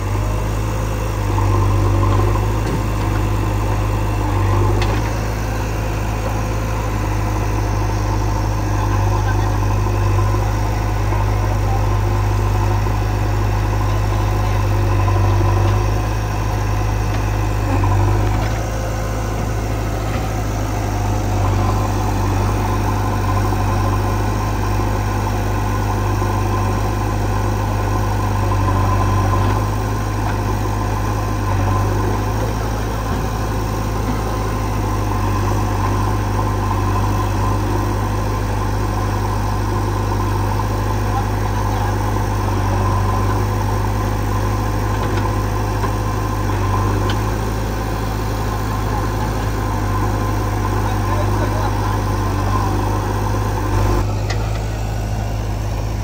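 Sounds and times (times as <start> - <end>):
heavy diesel engine humming: 0.0 - 56.0.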